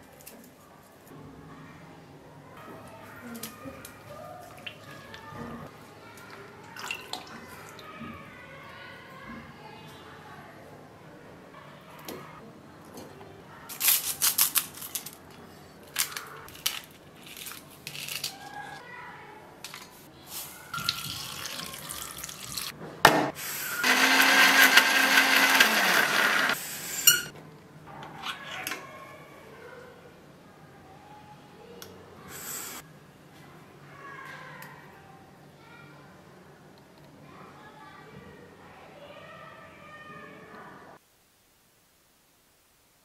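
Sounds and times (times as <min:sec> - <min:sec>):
mixer grinder running: 0:23.6 - 0:27.3.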